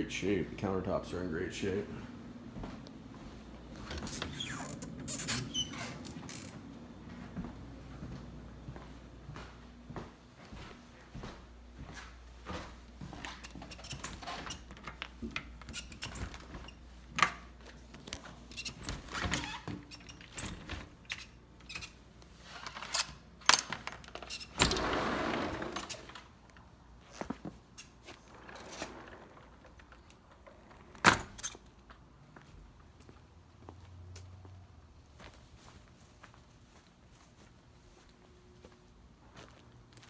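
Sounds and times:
glass door sliding: 0:03.7 - 0:06.7, 0:24.2 - 0:26.4, 0:27.7 - 0:31.6.

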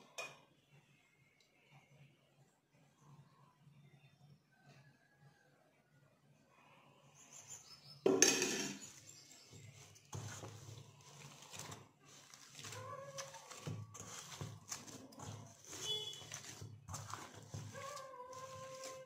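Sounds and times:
bowl rubbing and shifting: 0:07.2 - 0:19.0
hands kneading dough: 0:08.8 - 0:19.0.

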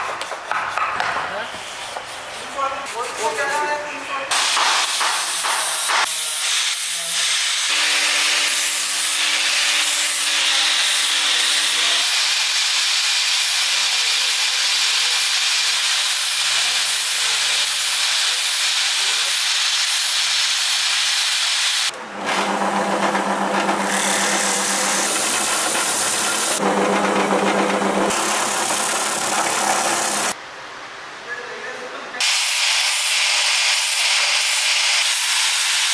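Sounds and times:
angle grinder sanding wood: 0:00.2 - 0:30.4
drill press sanding drum hiss: 0:04.3 - 0:30.4, 0:32.2 - 0:35.9
low motor hum: 0:22.0 - 0:30.3.

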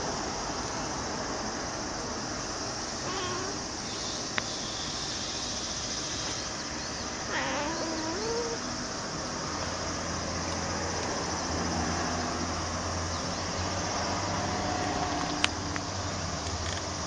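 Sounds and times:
steady background hiss: 0:00.0 - 0:17.0
cat meowing: 0:03.0 - 0:03.7, 0:07.3 - 0:08.7.

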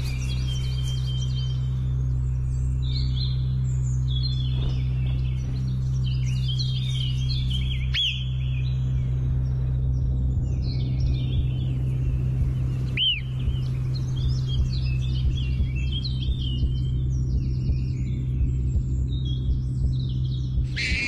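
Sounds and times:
small birds chirping: 0:00.0 - 0:21.0
steady low drone: 0:00.0 - 0:21.0
loud arching bird calls: 0:20.5 - 0:21.0.

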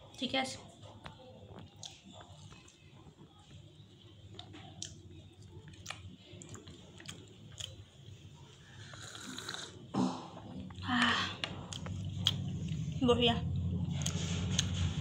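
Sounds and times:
person chewing with wet clicks: 0:00.9 - 0:08.2, 0:11.4 - 0:14.8
slurping sip of tea: 0:08.8 - 0:09.8.

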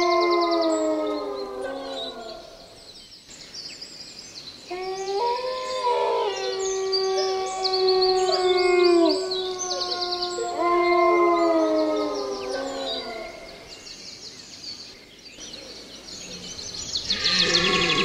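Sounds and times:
chorus of howling: 0:00.0 - 0:02.8, 0:04.7 - 0:13.7, 0:17.1 - 0:18.0.

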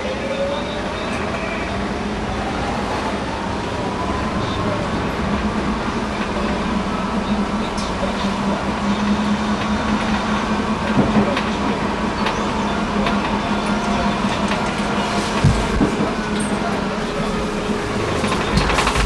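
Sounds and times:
tram running on tracks: 0:00.0 - 0:19.0
wheels clicking on rails: 0:05.4 - 0:19.0.

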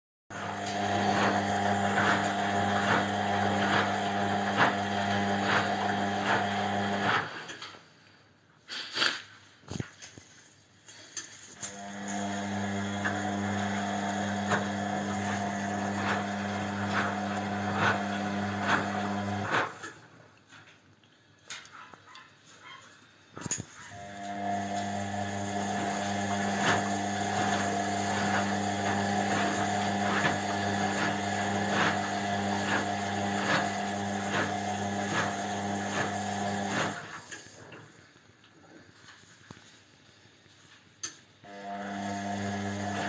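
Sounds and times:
washing machine motor hum: 0:00.3 - 0:07.5, 0:11.7 - 0:19.8, 0:23.9 - 0:38.0, 0:41.4 - 0:43.0.

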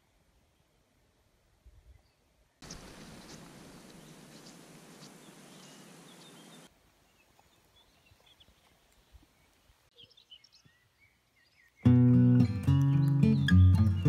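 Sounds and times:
songbird chirps: 0:00.0 - 0:14.0
steady hiss: 0:02.6 - 0:06.7.

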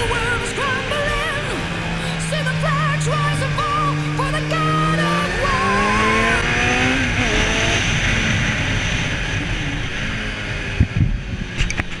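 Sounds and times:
music: 0:00.0 - 0:05.8
motorcycle engine running: 0:00.0 - 0:12.0
wind rushing over microphone: 0:05.5 - 0:12.0
wind buffets thumping: 0:10.6 - 0:12.0.

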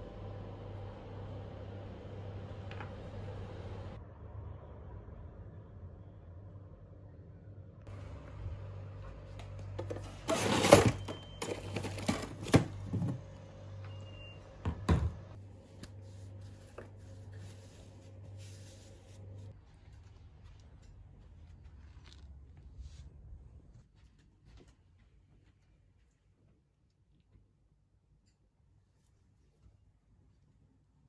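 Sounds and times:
hard plastic clattering: 0:09.8 - 0:13.2.

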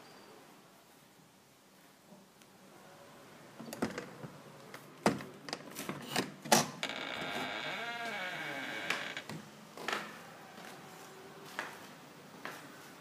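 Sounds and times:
door creaking: 0:05.0 - 0:10.0.

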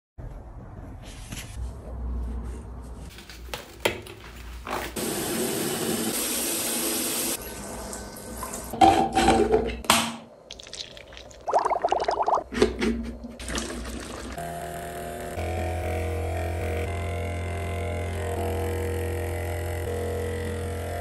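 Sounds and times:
wet handling sounds: 0:10.5 - 0:12.4.

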